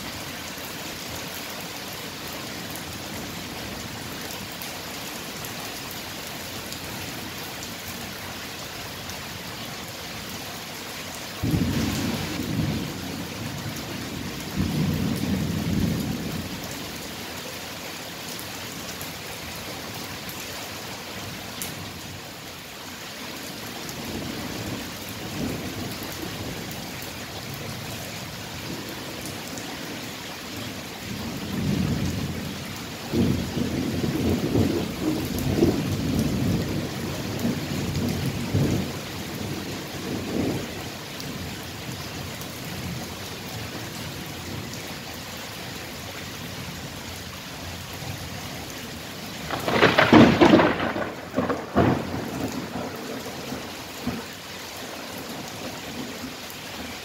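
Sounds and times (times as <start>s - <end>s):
steady rain: 0.0s - 57.0s
rolling thunder: 49.5s - 54.2s
thunderclap: 49.5s - 54.2s.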